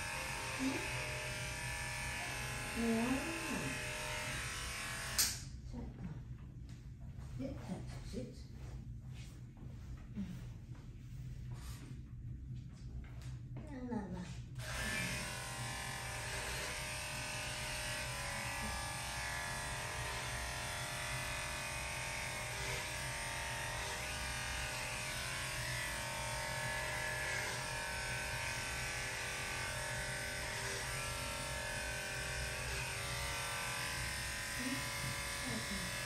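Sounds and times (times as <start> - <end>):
electric clippers buzzing: 0.0 - 5.5, 14.6 - 36.0.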